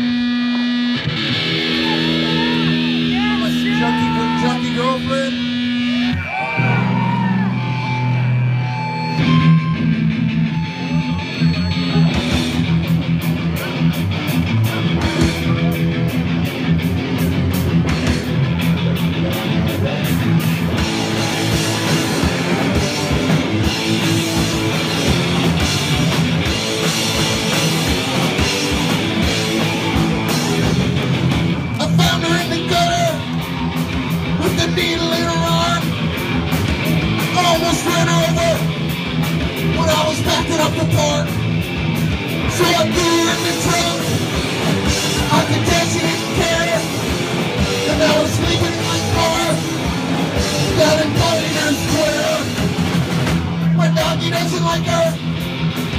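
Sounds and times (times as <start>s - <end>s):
punk rock band playing: 0.0s - 55.9s.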